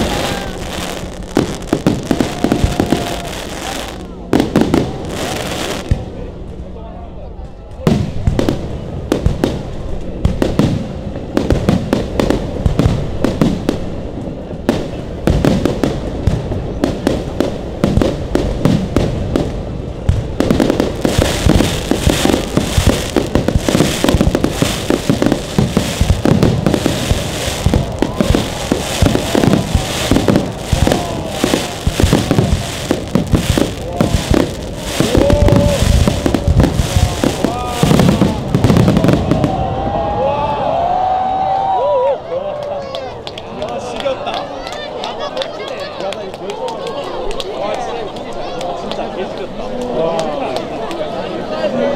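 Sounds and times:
crackling hiss: 0:00.0 - 0:06.1, 0:08.0 - 0:39.6
firework shells bursting: 0:20.2 - 0:39.3.

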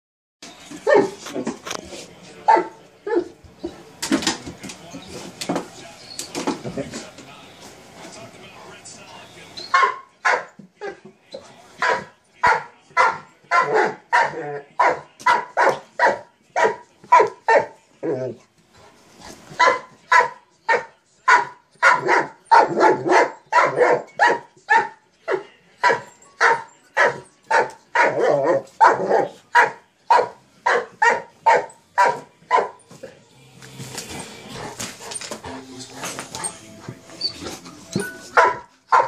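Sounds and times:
dog barking: 0:02.5 - 0:03.3, 0:09.7 - 0:10.5, 0:11.8 - 0:17.8, 0:19.6 - 0:25.0, 0:25.8 - 0:32.8, 0:38.3 - 0:39.0.

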